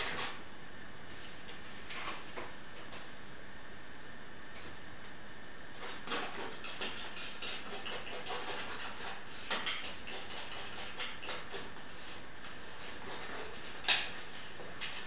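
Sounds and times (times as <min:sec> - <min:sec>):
palette knife scraping paint on canvas: 0:05.8 - 0:15.0.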